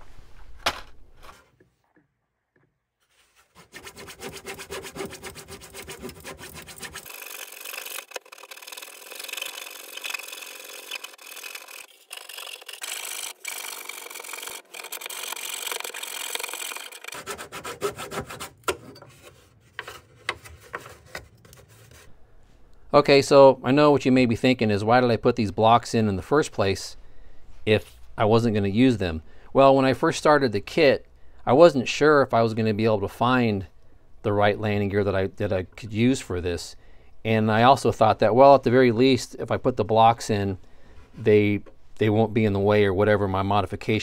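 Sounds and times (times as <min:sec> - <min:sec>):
small saw cutting wood: 0:03.4 - 0:22.0.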